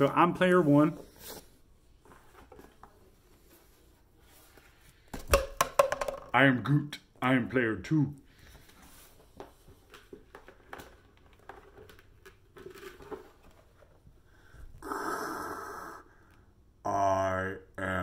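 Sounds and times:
breathy hiss: 14.3 - 16.5.

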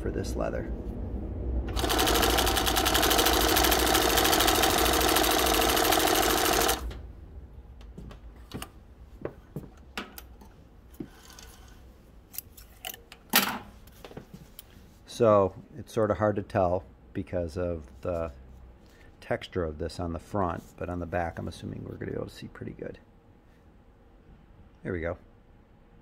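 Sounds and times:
industrial sewing machine running: 1.7 - 6.9.

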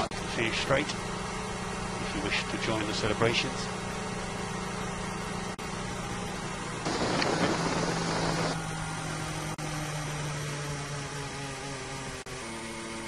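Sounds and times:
race car engine at low revs: 0.0 - 13.0
radio hiss: 6.9 - 8.6.

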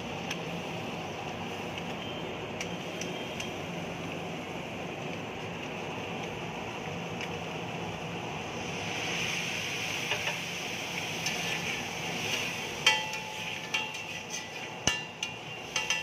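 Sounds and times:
egg sizzling on a griddle: 5.3 - 16.0
metal spatula scraping: 11.2 - 16.0
spatula clanging on griddle: 12.8 - 16.0.

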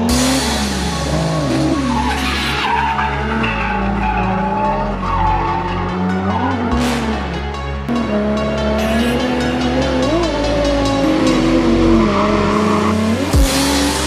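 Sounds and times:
tyres screeching: 0.0 - 7.5
car engine revving: 0.0 - 14.0
music with heavy bass: 0.0 - 14.0.

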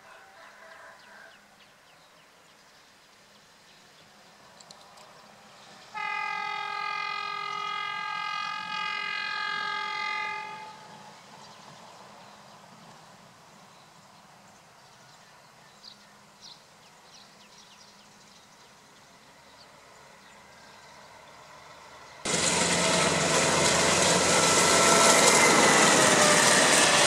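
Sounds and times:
distant train rumble: 3.4 - 27.0
locomotive horn blast: 5.9 - 11.0, 22.3 - 27.0.

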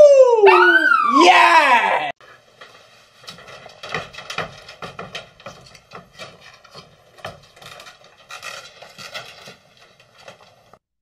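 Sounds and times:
cat claws scraping mesh screen: 3.2 - 10.6.

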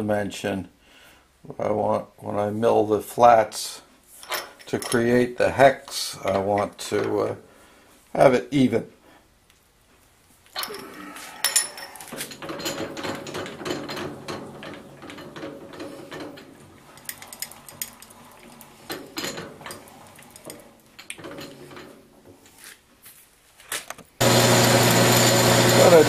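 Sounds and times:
handwheel turning: 25.0 - 26.0.

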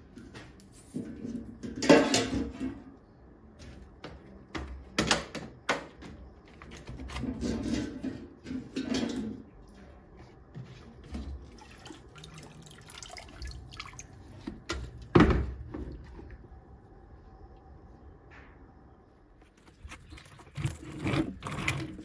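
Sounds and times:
water dripping: 11.5 - 15.1.

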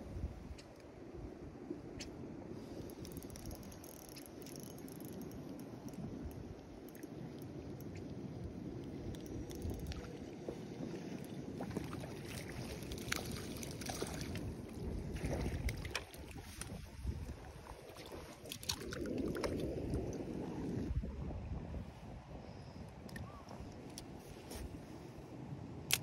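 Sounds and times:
wind rumbling on microphone: 0.0 - 26.0.

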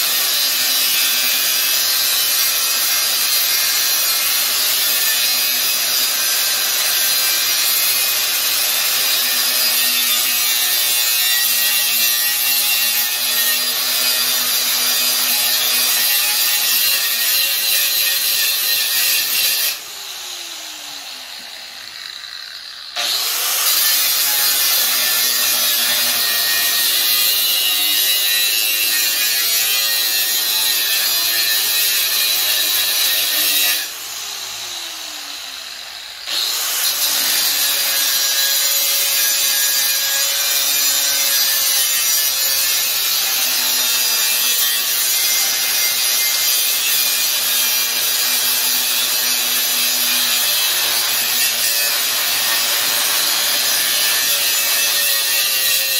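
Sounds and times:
angle grinder on metal: 0.0 - 55.9
grinder winding down: 18.1 - 27.8, 32.7 - 38.0.

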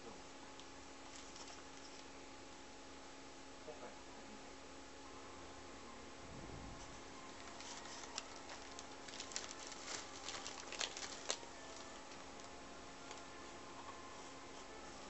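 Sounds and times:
paper and plastic crinkling: 1.0 - 2.1, 6.8 - 13.3.

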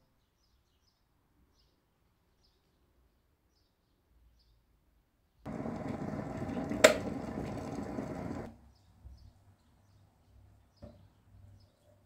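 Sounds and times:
water boiling in kettle: 5.5 - 8.5
kettle click: 6.5 - 8.4.

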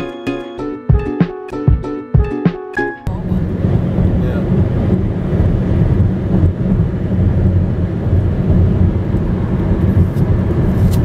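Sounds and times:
car road and engine rumble: 3.1 - 11.0.

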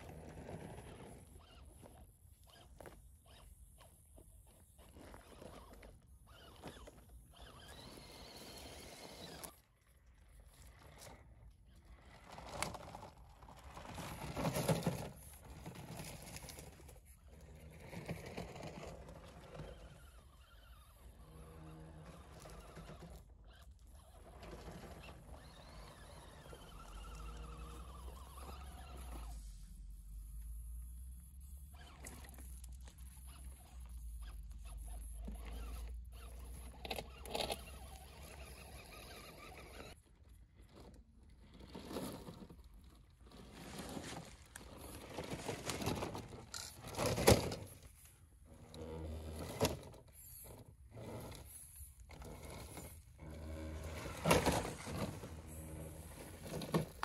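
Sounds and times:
tyres scraping over ground: 0.0 - 3.5, 10.4 - 30.0, 31.8 - 48.1, 49.0 - 57.0
electric motor and gear whine: 4.8 - 9.7, 13.8 - 33.6.

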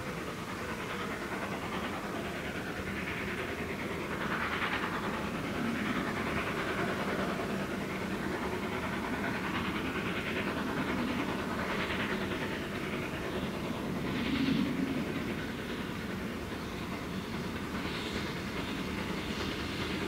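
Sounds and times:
moving train noise: 0.0 - 20.0
steam locomotive exhaust chuffing: 0.0 - 20.0.

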